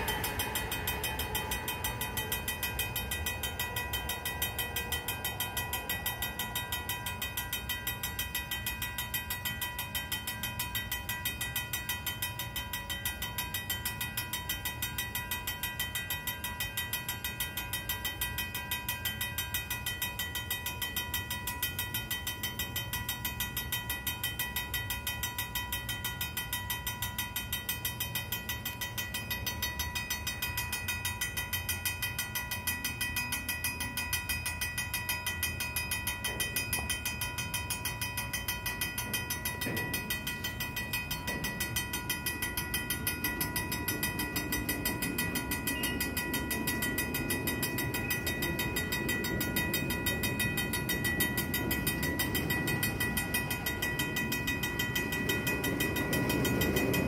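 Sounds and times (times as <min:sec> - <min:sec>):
freight cars rumbling on track: 0:00.0 - 0:26.6, 0:27.2 - 0:57.0
railroad crossing bell ringing: 0:00.0 - 0:57.0.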